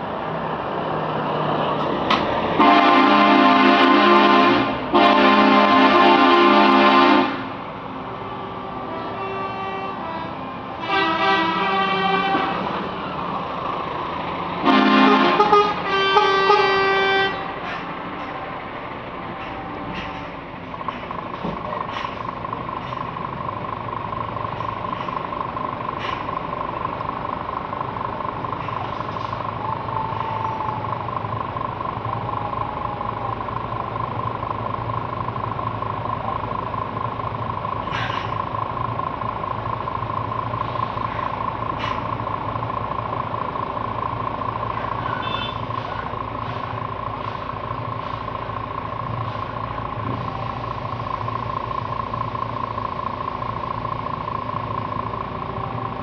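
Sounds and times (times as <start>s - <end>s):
diesel trucks idling: 0.0s - 56.0s.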